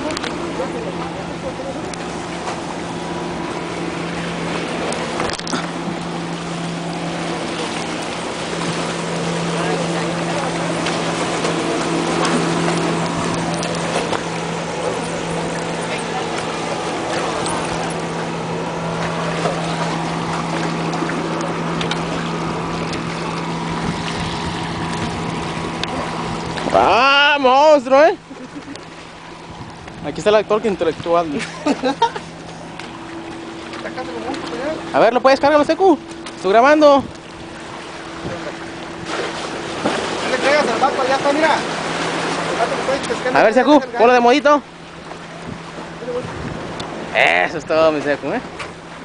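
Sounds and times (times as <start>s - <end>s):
low motor hum: 0.0s - 49.0s
sea rushing against rocks: 0.0s - 49.0s
wind on microphone: 16.5s - 26.9s, 29.4s - 31.4s, 36.8s - 40.0s, 45.3s - 47.9s
wind noise: 23.6s - 26.8s, 45.4s - 47.0s.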